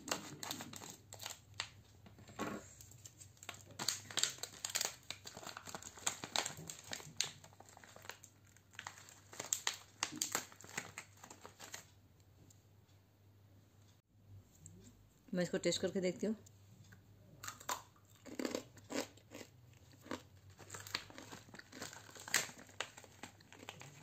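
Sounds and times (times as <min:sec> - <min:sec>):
plastic packet crinkling: 0:00.0 - 0:01.7, 0:03.0 - 0:11.9, 0:19.9 - 0:24.0.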